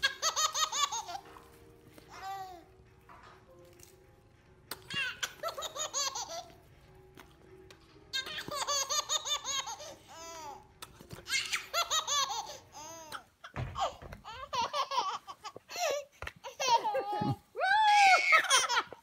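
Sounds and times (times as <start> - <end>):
baby laughing: 0.0 - 1.3, 4.7 - 6.6, 8.1 - 17.5, 18.2 - 19.0.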